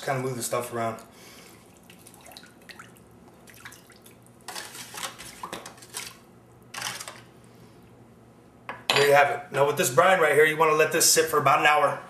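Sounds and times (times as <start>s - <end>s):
small wet splashes: 1.4s - 4.4s.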